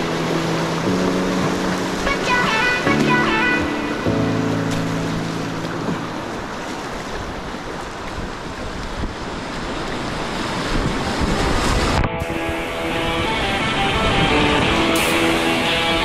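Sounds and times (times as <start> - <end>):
background music: 0.0 - 6.5, 11.2 - 16.0
whitewater rushing: 0.0 - 16.0
wind on microphone: 5.2 - 16.0.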